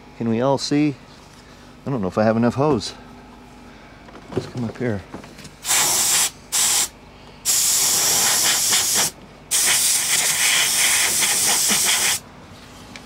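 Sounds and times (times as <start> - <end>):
compressed air hissing bursts: 5.6 - 12.2.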